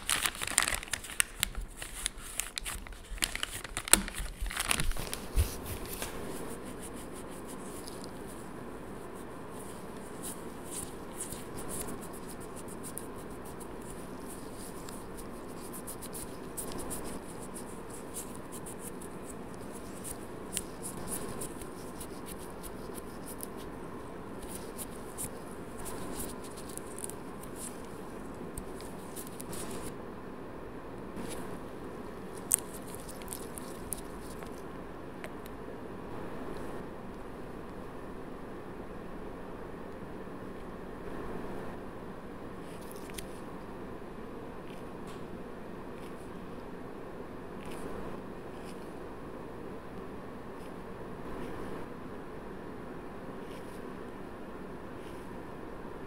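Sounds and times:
plastic packet crinkling: 0:00.0 - 0:08.4, 0:09.6 - 0:23.8, 0:24.4 - 0:30.0, 0:32.3 - 0:34.6
wipe rubbing fingernails: 0:05.0 - 0:30.0.

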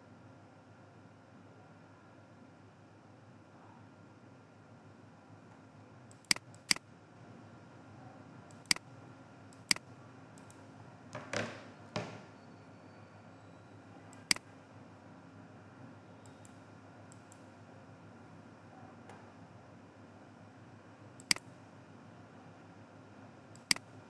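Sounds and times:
computer mouse clicks: 0:06.1 - 0:06.8, 0:08.5 - 0:08.8, 0:10.4 - 0:10.6, 0:16.2 - 0:17.5, 0:21.2 - 0:21.4, 0:23.5 - 0:23.9.

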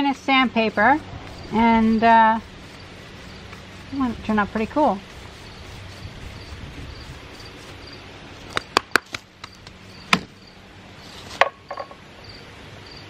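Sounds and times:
insect chirping: 0:00.3 - 0:08.7, 0:09.4 - 0:13.0
wooden knocks and clicks: 0:11.4 - 0:12.0.

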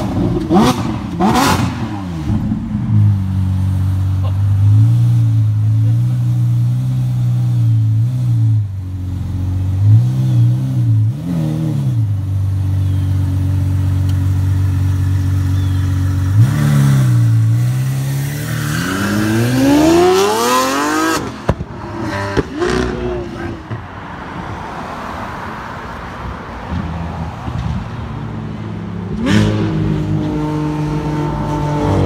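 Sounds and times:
car engine idling and revving: 0:00.0 - 0:32.0.

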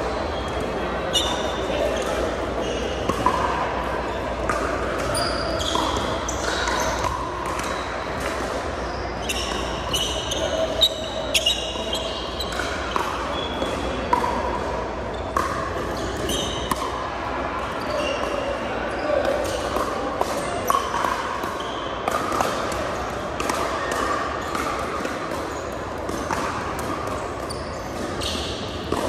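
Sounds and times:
sneakers squeaking on hardwood: 0:05.0 - 0:08.0, 0:08.9 - 0:13.7, 0:15.1 - 0:16.7, 0:17.8 - 0:18.5, 0:27.1 - 0:29.0.

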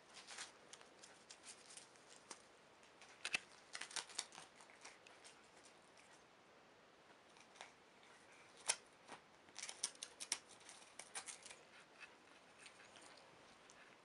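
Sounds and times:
cat tearing paper: 0:03.0 - 0:06.2, 0:07.4 - 0:13.2.

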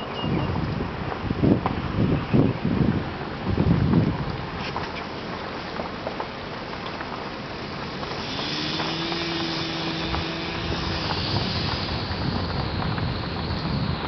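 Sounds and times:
vehicle rumbling on dirt road: 0:00.0 - 0:14.0
droning hum: 0:07.4 - 0:14.0.

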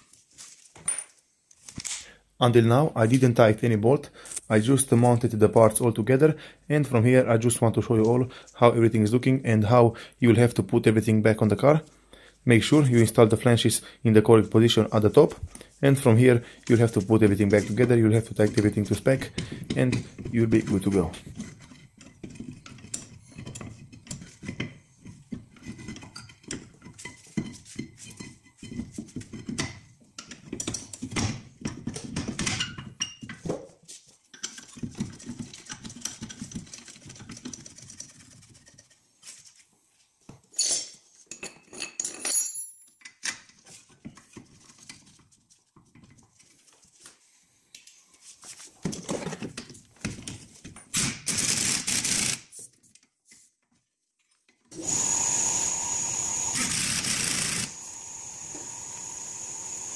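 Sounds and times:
metal parts clinking and scraping: 0:40.5 - 0:43.3.

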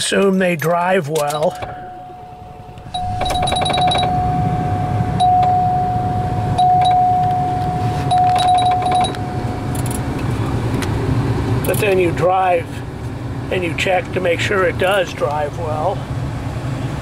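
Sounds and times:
car engine running: 0:01.2 - 0:17.0
electronic warning tone: 0:01.6 - 0:10.2.

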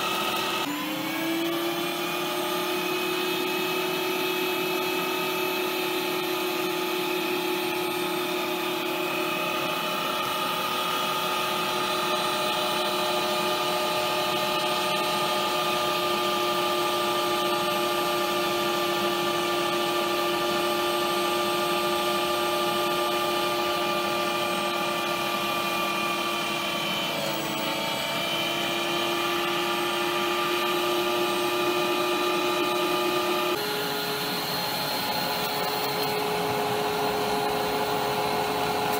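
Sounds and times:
meat grinder motor whining hum: 0:00.0 - 0:38.9.

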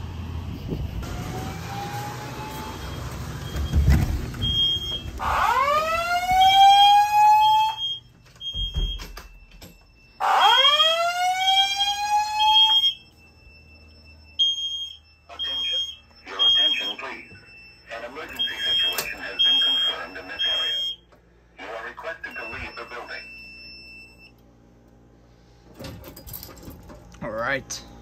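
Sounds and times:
fire alarm whoop tone: 0:01.0 - 0:21.0, 0:22.3 - 0:24.4
high beeping: 0:12.3 - 0:21.0, 0:22.2 - 0:24.3.

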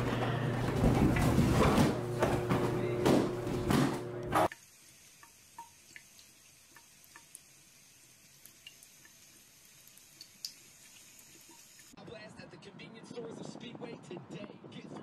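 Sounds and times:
cat drinking drips: 0:04.5 - 0:12.0
faucet water trickling: 0:04.5 - 0:12.0.

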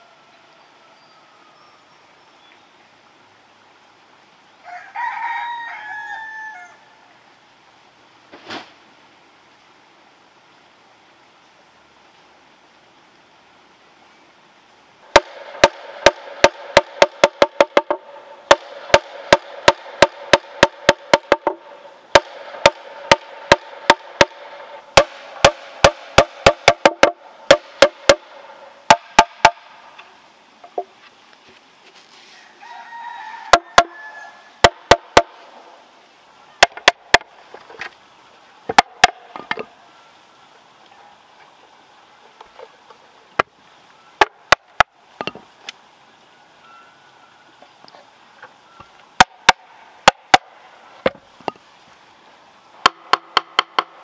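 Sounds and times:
machete knocking on bamboo: 0:15.1 - 0:24.4, 0:25.0 - 0:28.2, 0:36.6 - 0:37.3.

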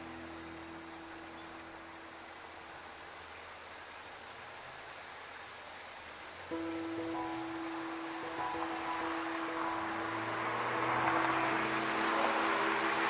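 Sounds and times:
background music: 0:00.0 - 0:02.6, 0:06.5 - 0:13.0
crickets chirping: 0:00.0 - 0:13.0
faint outdoor hiss: 0:00.0 - 0:13.0.

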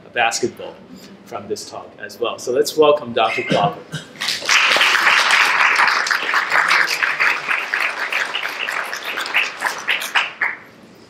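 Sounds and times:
audience applauding: 0:04.2 - 0:10.7.

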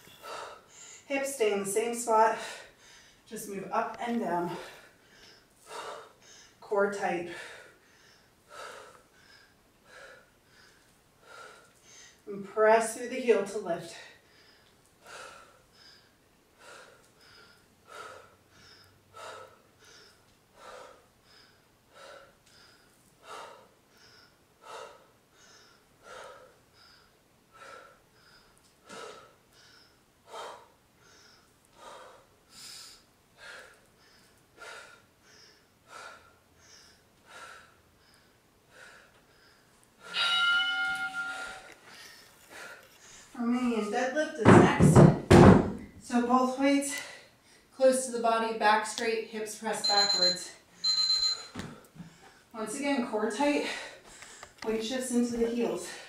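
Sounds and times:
woman breathing hard: 0:00.0 - 0:01.1, 0:02.3 - 0:03.3, 0:04.5 - 0:06.6, 0:07.3 - 0:12.3, 0:13.9 - 0:43.4, 0:53.6 - 0:54.6
interval timer beeping: 0:49.8 - 0:51.5.

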